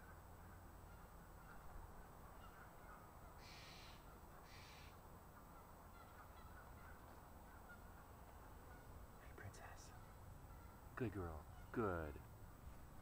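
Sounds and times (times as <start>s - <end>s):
crow cawing: 2.4s - 5.0s.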